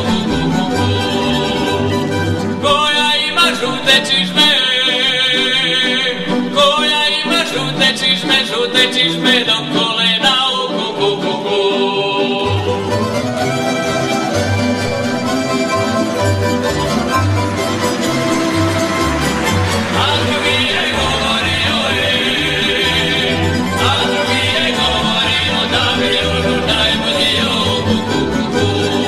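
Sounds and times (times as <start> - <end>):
choir singing: 0.0 - 29.0
plucked string orchestra: 0.0 - 29.0.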